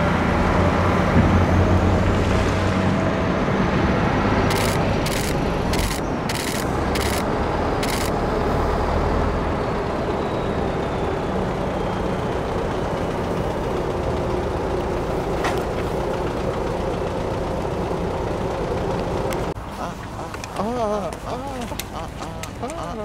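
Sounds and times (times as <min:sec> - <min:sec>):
faint traffic hum: 0:00.0 - 0:23.0
truck diesel engine running: 0:00.0 - 0:23.0.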